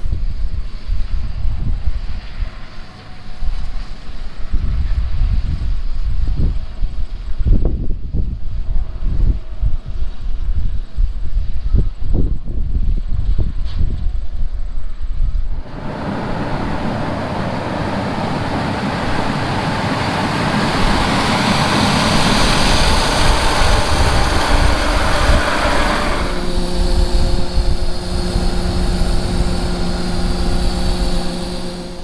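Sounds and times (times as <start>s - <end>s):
engine drone: 15.5s - 32.0s
combine harvester working: 15.6s - 32.0s.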